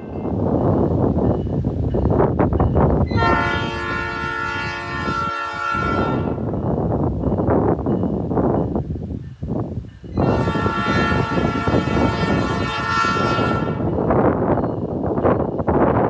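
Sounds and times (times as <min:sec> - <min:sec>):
locomotive air horn: 0:03.1 - 0:06.5, 0:10.2 - 0:14.0.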